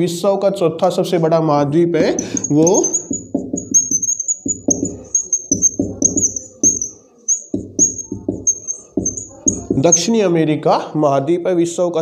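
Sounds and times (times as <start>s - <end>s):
short high chirps: 2.2s - 9.6s
marker writing on whiteboard: 2.2s - 10.1s.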